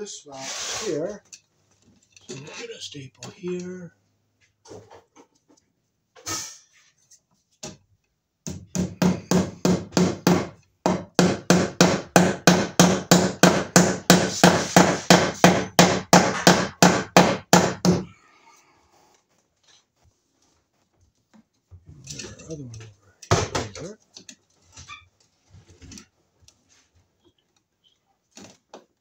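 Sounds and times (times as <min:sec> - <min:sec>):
hammer blows on staple: 0:08.6 - 0:18.1.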